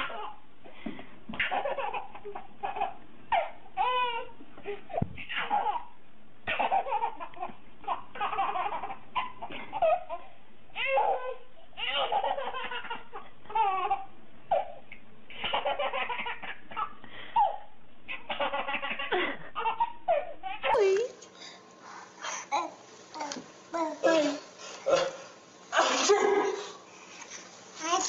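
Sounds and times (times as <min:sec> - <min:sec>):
baby laughing: 0:01.4 - 0:04.3, 0:05.2 - 0:05.9, 0:06.5 - 0:21.1.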